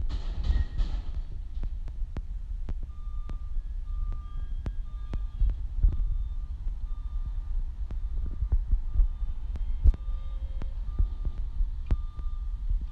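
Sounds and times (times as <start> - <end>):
diesel engine rumble: 0.0 - 12.9
truck backup alarm beeping: 2.9 - 12.9.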